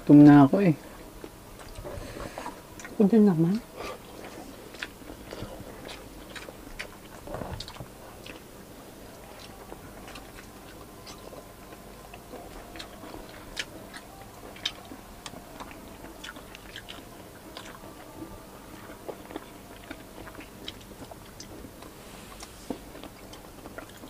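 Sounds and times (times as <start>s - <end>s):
chewing and mouth smacking: 1.2s - 3.0s, 3.7s - 24.0s.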